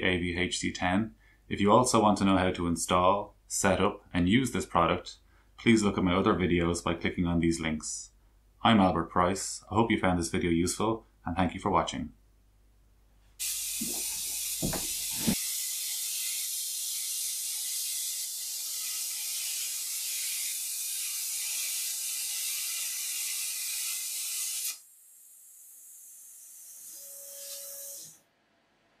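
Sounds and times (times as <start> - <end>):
plasma cutter hissing: 13.4 - 16.4
brief steady tone: 27.0 - 28.0.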